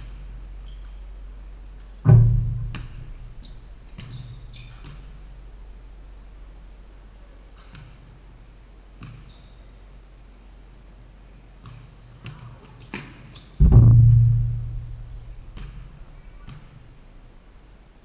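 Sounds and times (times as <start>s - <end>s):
backboard ringing hum: 0.0s - 6.6s, 13.6s - 17.6s
sneaker squeaks: 0.6s - 1.0s, 3.4s - 5.3s, 9.0s - 9.8s, 11.5s - 14.4s
ball bouncing on wooden floor: 2.1s - 5.1s, 13.6s - 16.7s
basketball hitting backboard: 2.1s - 5.2s, 13.6s - 16.8s.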